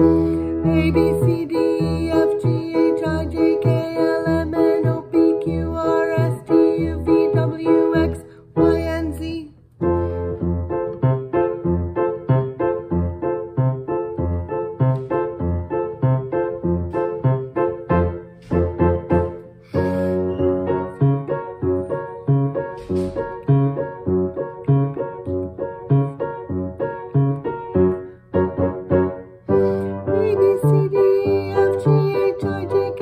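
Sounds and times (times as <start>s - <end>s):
woman singing vocal exercise: 0.0s - 9.5s, 30.1s - 33.0s
piano playing chords: 0.0s - 33.0s.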